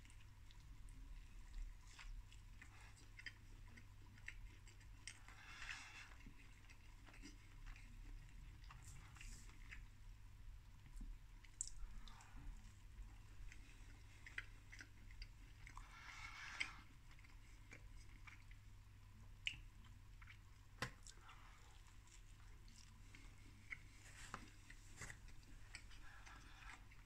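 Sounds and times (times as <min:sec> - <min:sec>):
low steady hum: 0:00.0 - 0:27.0
person chewing food: 0:00.0 - 0:27.0
soft mouth clicks: 0:11.4 - 0:12.3, 0:19.4 - 0:19.7.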